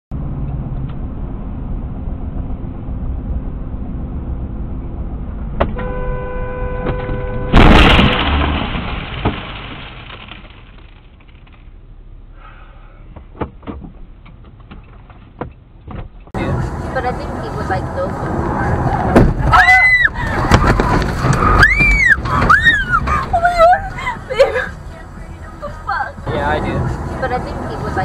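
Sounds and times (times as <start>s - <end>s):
road noise inside moving car: 0.1s - 28.0s
car horn: 5.7s - 8.0s
loud collision crash: 6.9s - 11.2s.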